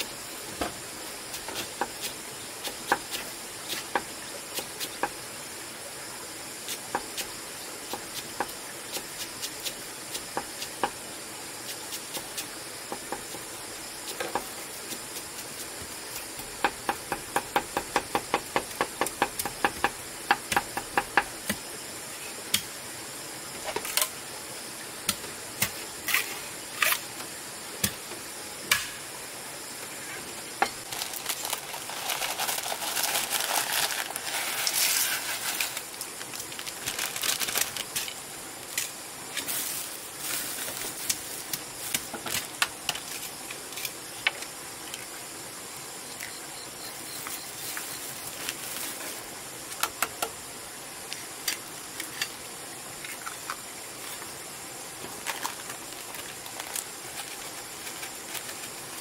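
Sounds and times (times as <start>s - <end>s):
rustling: 30.8s - 38.1s, 39.3s - 42.0s.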